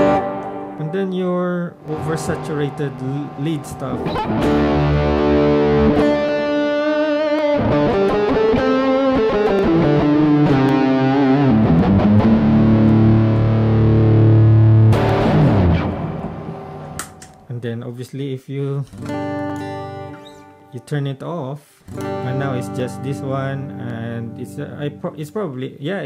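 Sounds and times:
distorted electric guitar lead: 0:00.0 - 0:17.5, 0:21.9 - 0:25.0.

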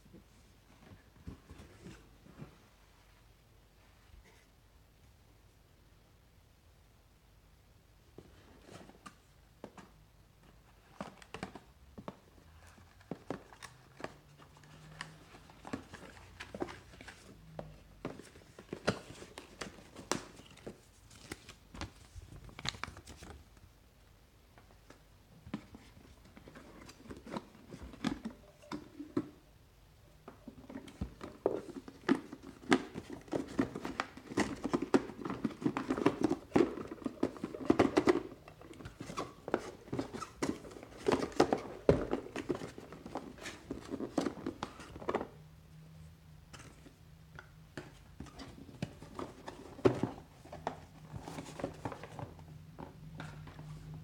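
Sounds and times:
plastic device being handled: 0:08.2 - 0:23.5, 0:24.8 - 0:29.4, 0:30.2 - 0:45.4, 0:46.5 - 0:54.0.

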